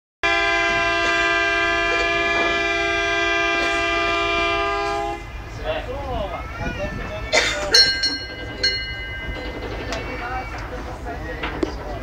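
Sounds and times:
boat horn blast: 0:00.2 - 0:05.5.

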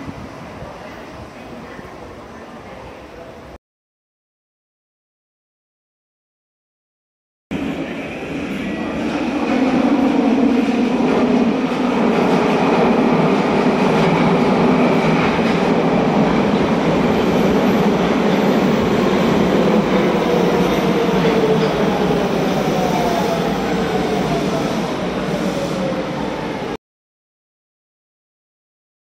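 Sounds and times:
subway train rumbling and rattling: 0:00.0 - 0:03.6, 0:07.5 - 0:26.8
train brakes whining: 0:20.0 - 0:26.2.

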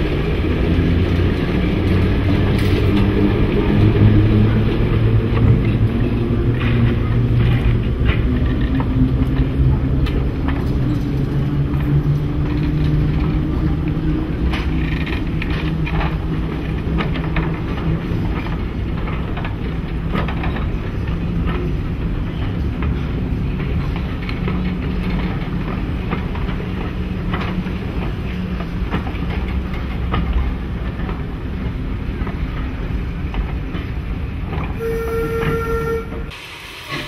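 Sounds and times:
diesel locomotive engine running: 0:00.0 - 0:37.0
train wheels clicking over rail joints: 0:00.0 - 0:37.0.

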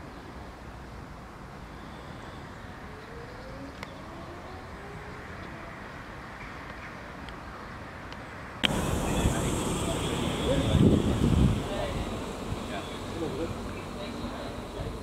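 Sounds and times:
distant traffic hum: 0:00.0 - 0:15.0
faint rising tones: 0:08.6 - 0:15.0.

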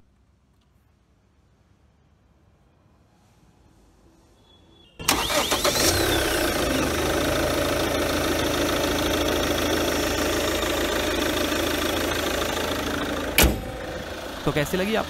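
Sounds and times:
diesel engine starting and idling: 0:05.0 - 0:15.0.

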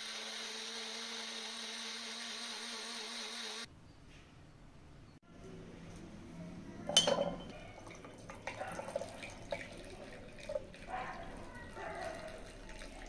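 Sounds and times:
juice pouring and dripping: 0:07.4 - 0:13.0.

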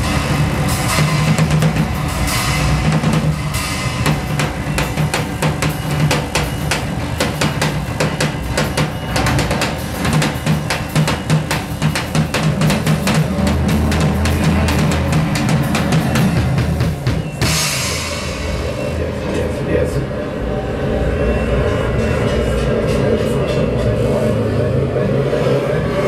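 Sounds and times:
drum kit playing: 0:00.0 - 0:19.0
cymbal wash: 0:00.0 - 0:22.7.

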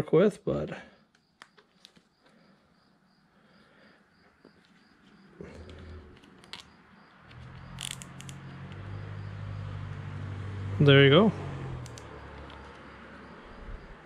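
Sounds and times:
cricket chirping: 0:00.7 - 0:14.0
rustling and clicks of handling: 0:01.1 - 0:02.4
low hum: 0:05.3 - 0:06.7.

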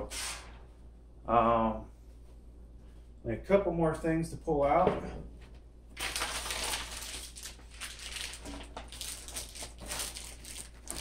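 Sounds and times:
packing paper and cardboard rustling: 0:06.0 - 0:11.0.

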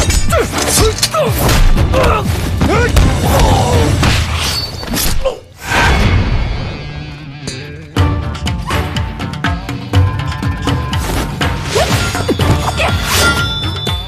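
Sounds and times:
background music: 0:00.0 - 0:04.5, 0:06.0 - 0:14.0
shouts and grunts: 0:00.3 - 0:04.0
fight hits and thuds: 0:01.4 - 0:04.4.

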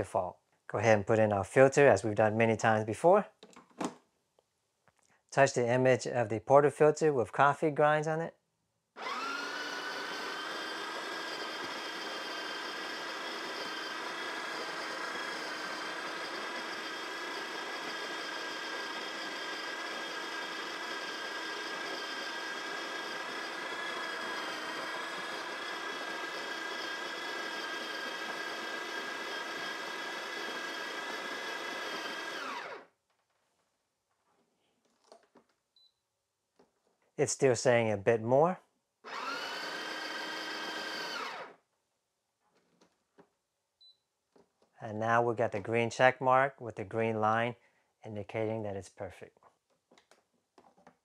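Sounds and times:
coffee grinder grinding beans: 0:09.0 - 0:32.9, 0:39.1 - 0:41.6.

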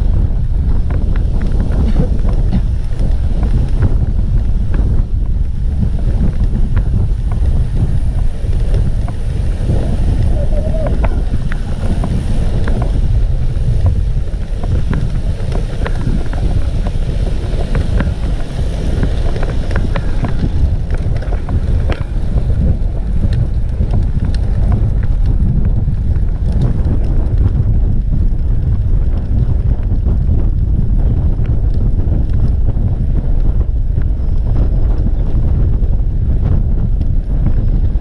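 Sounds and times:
wind buffeting microphone: 0:00.0 - 0:38.0.

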